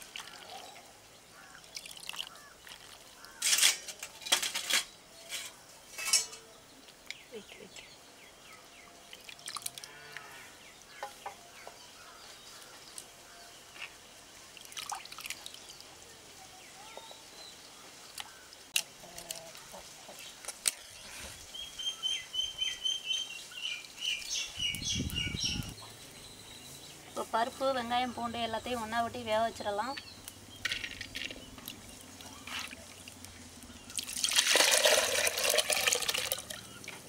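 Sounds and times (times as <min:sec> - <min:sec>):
water splashing and dripping: 0:00.0 - 0:00.7, 0:01.5 - 0:03.8, 0:09.1 - 0:09.9, 0:14.5 - 0:15.9, 0:30.6 - 0:37.0.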